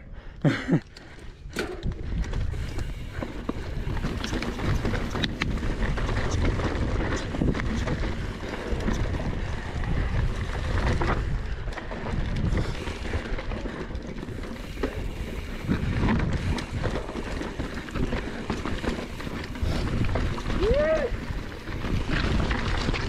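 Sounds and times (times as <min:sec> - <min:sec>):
tyres rumbling on dirt trail: 0:00.1 - 0:23.0
bike clicks and knocks: 0:00.6 - 0:23.0
wind on microphone: 0:01.5 - 0:13.3.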